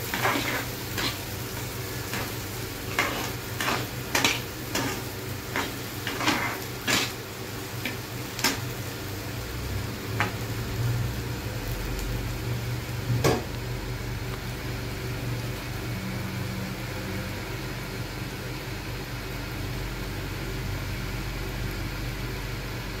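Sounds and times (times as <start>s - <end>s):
metal spatula scraping frying pan: 0.0s - 8.6s
food sizzling: 0.0s - 22.8s
steady low hum: 0.0s - 22.8s.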